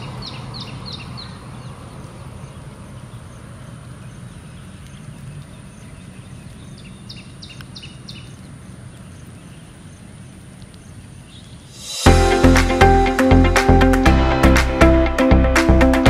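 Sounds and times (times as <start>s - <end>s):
bird chirps: 0.0s - 3.3s, 4.0s - 9.8s.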